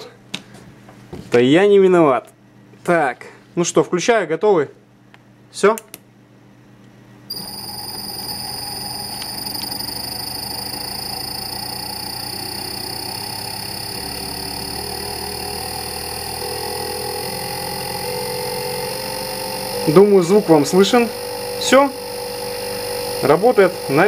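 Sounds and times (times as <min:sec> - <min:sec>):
electric motor hum rising in pitch: 0:07.3 - 0:24.0
high-pitched switching whine: 0:07.3 - 0:24.0.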